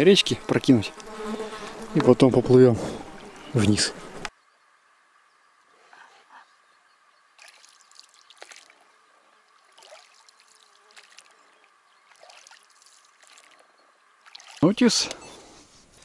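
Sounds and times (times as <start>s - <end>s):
water dripping: 7.4s - 14.6s
oars splashing in water: 7.4s - 14.7s.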